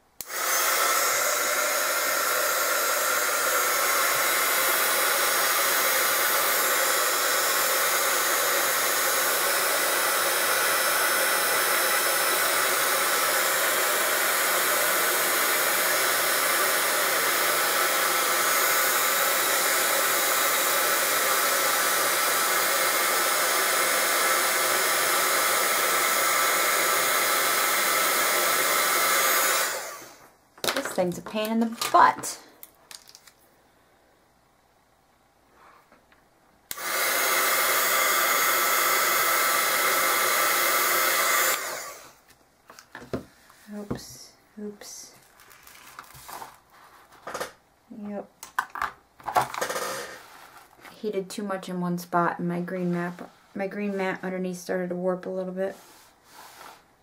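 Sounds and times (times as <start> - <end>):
heat gun blowing air: 0.2 - 30.3, 36.7 - 42.3, 49.6 - 50.5.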